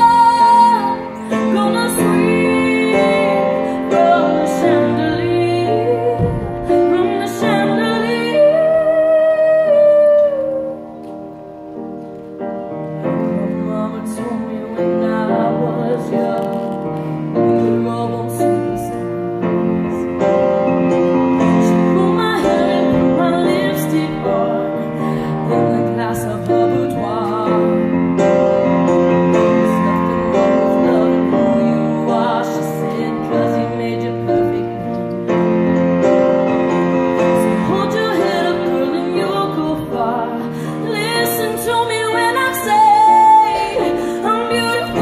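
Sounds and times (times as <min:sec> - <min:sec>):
woman singing: 0:00.0 - 0:10.9, 0:13.0 - 0:20.2, 0:21.2 - 0:35.6, 0:37.1 - 0:45.0
upright piano playing slow song: 0:00.0 - 0:45.0.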